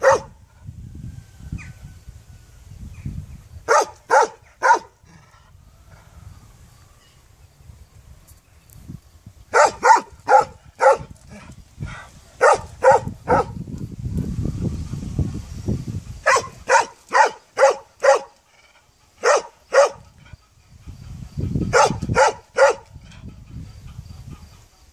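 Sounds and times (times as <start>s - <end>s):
large dog barking: 0.0s - 0.4s, 3.6s - 5.3s, 9.5s - 11.5s, 12.4s - 13.6s, 16.2s - 20.3s, 21.7s - 22.9s.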